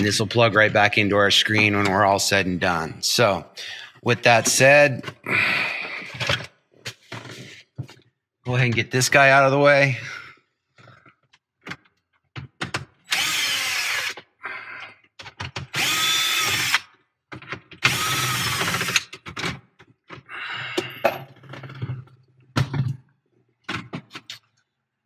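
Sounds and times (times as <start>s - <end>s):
cordless drill motor whine: 13.1s - 14.1s, 15.8s - 16.8s, 17.9s - 19.0s
drill clicks: 13.1s - 14.2s, 15.3s - 16.9s, 17.8s - 19.3s.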